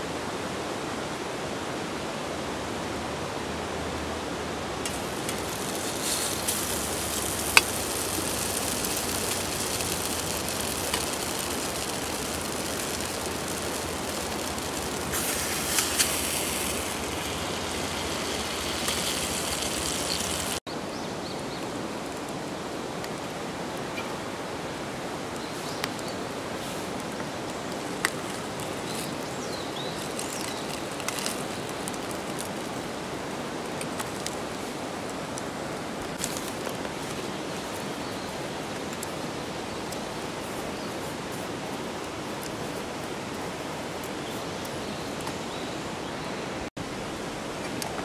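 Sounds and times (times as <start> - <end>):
rushing water: 0.0 - 48.0
sharp ticks: 4.9 - 20.6.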